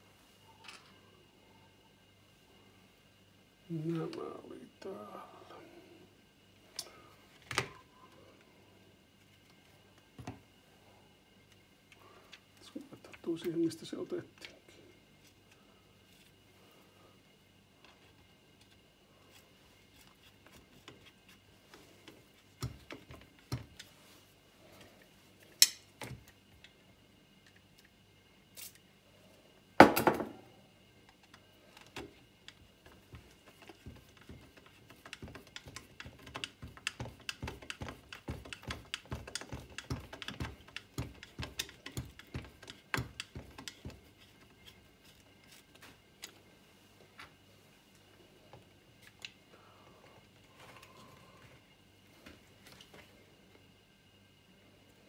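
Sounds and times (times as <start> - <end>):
screwdriver clicks and knocks on plastic: 33.1 - 44.0.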